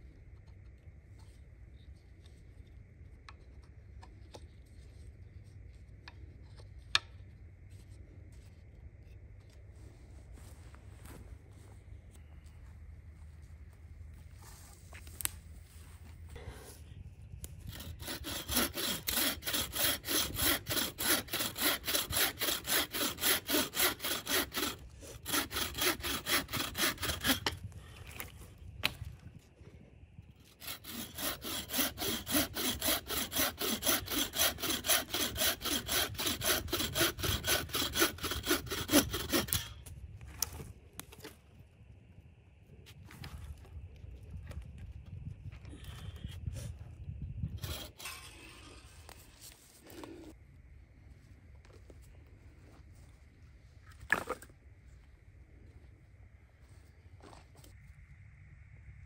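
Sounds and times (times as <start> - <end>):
saw cutting through branch: 17.7 - 27.7, 30.5 - 39.8, 47.5 - 50.2.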